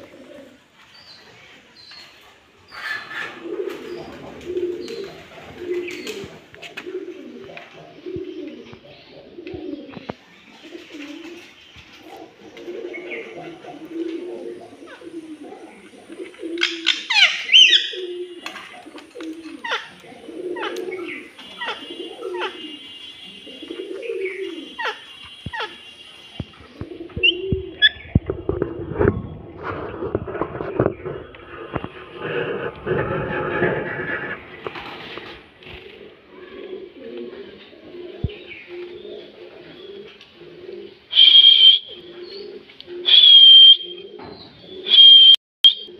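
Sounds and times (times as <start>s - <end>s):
low wavering cooing: 12.2s - 22.8s, 23.5s - 25.0s, 35.7s - 45.0s.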